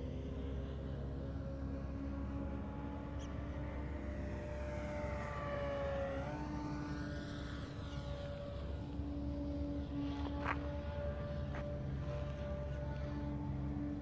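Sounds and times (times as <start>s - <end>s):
engine drone with low rumble: 0.0s - 14.0s.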